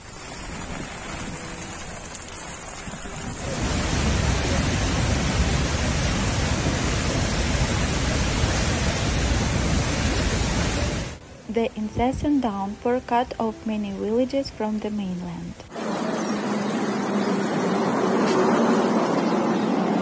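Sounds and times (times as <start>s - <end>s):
water rushing over dam spillway: 0.0s - 11.2s.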